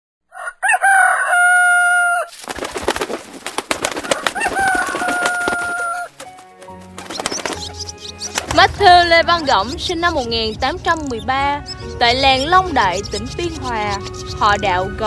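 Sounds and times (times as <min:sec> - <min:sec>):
chicken clucks and chirps: 0:00.3 - 0:02.3, 0:03.9 - 0:06.1, 0:07.0 - 0:08.6, 0:09.2 - 0:14.7
rooster crowing: 0:00.3 - 0:02.3, 0:04.0 - 0:06.2.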